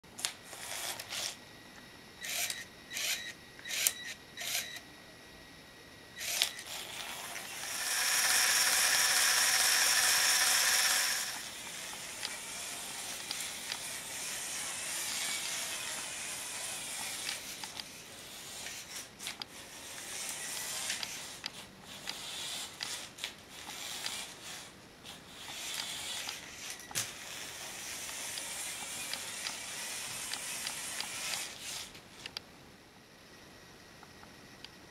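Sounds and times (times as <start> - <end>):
toy motor whining through gears: 0.2 - 1.4, 2.2 - 4.8, 6.2 - 32.0.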